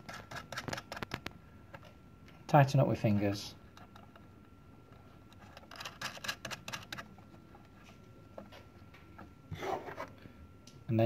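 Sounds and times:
fingers rubbing metal and wire: 0:00.0 - 0:01.3, 0:05.3 - 0:07.1.

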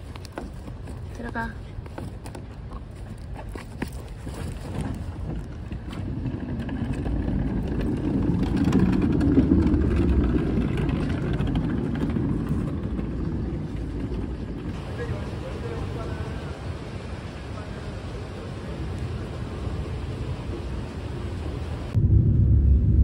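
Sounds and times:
low rumbling: 0:04.6 - 0:23.0.

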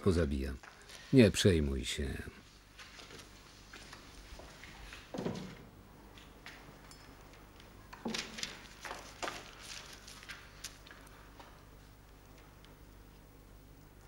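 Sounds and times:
paper being handled: 0:08.1 - 0:11.2.

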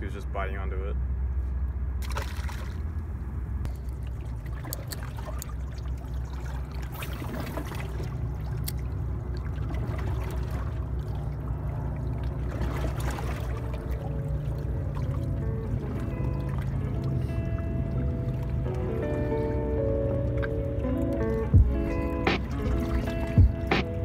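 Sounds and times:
low rumble: 0:00.9 - 0:24.0
water lapping among rocks: 0:03.7 - 0:24.0
music: 0:13.6 - 0:24.0.

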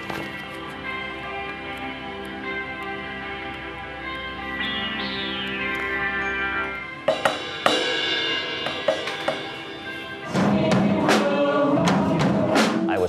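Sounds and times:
sustained instrumental music: 0:00.0 - 0:13.0
drum kit playing: 0:05.1 - 0:13.0
cymbal and drum hits: 0:07.1 - 0:13.0.

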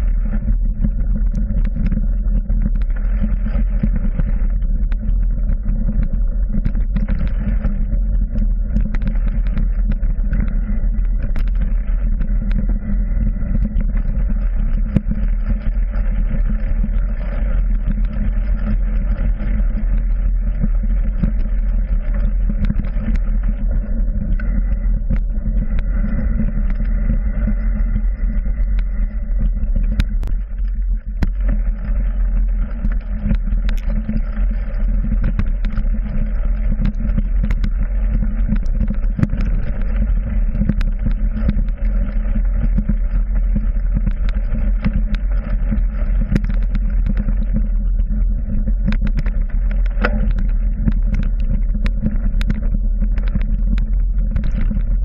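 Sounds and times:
trail vibration rumble: 0:00.0 - 0:55.0.

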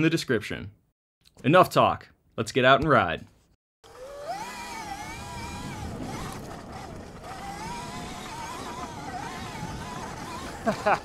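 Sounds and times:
electric motor whining: 0:03.8 - 0:11.0.

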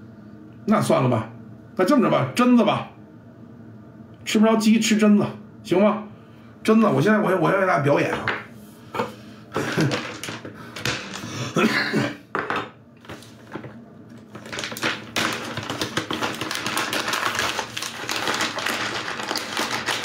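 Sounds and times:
plastic snack bag crinkling: 0:13.0 - 0:20.0.

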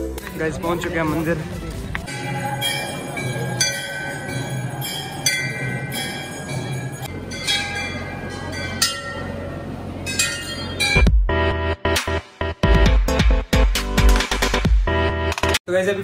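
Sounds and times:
brass bells clanging: 0:02.1 - 0:11.2.

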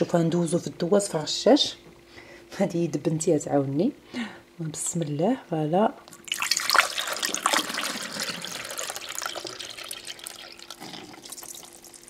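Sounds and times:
liquid pouring through funnel: 0:06.1 - 0:12.0.

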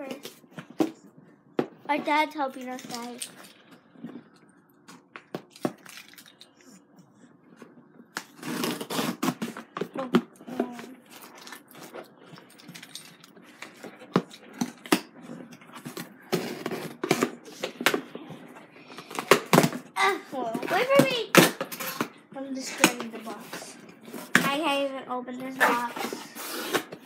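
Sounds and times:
cardboard tape tearing: 0:08.2 - 0:09.6, 0:26.0 - 0:27.0.

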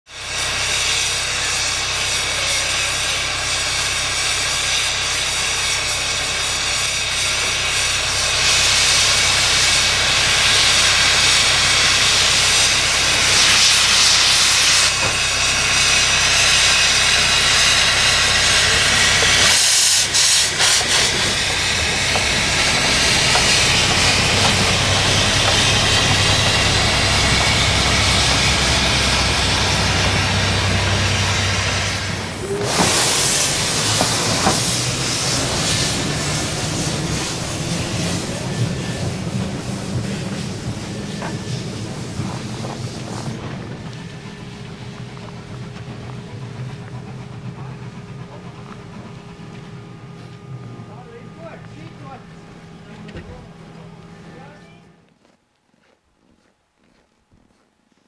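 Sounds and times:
steam hissing: 0:00.1 - 0:54.6.

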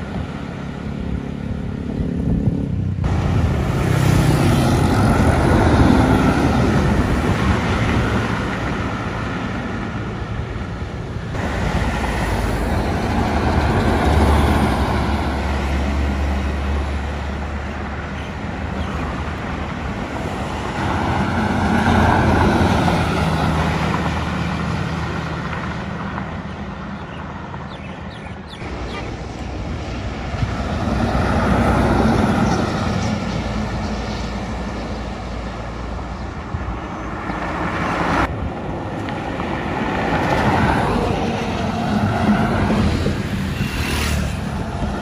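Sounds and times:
diesel buses passing: 0:00.0 - 0:45.0
wind buffeting microphone: 0:01.1 - 0:15.8, 0:28.2 - 0:45.0.

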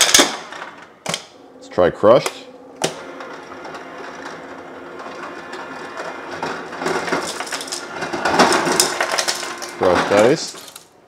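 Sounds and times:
ice dispenser motor humming: 0:01.3 - 0:10.9
ice crushing and clattering into cup: 0:05.0 - 0:11.0.

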